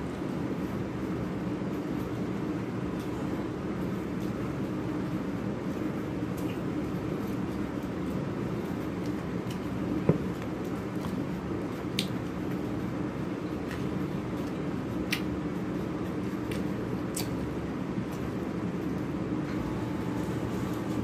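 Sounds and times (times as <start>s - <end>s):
steady background hum: 0.0s - 21.0s
wet chewing: 13.5s - 15.3s, 16.4s - 17.5s.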